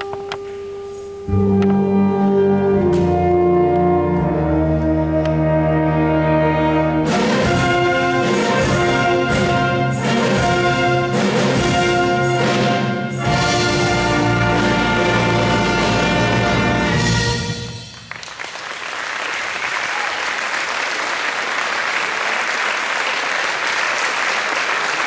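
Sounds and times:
audience applause: 17.9 - 25.0.

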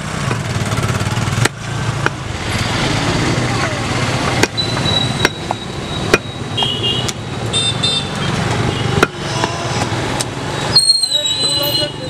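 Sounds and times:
street traffic: 0.0 - 12.0
cleaver chopping meat on wood: 1.3 - 2.2, 4.2 - 7.2, 8.9 - 10.3
vehicle horn toots: 6.6 - 9.0.

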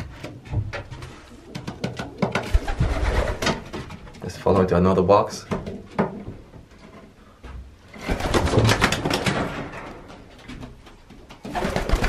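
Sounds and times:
pigeon wings flapping: 1.4 - 3.9, 8.0 - 9.7, 11.3 - 12.0.

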